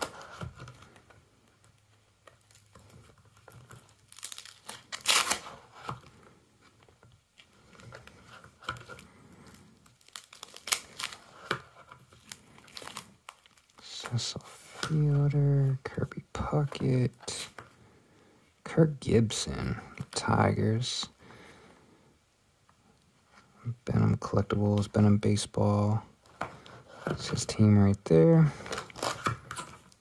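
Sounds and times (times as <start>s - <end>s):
plastic pages rustling: 0.0s - 15.4s, 28.5s - 30.0s.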